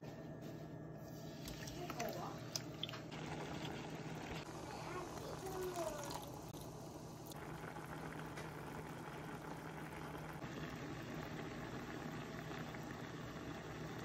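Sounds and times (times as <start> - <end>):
chicken simmering in a frying pan: 2.9 - 14.0.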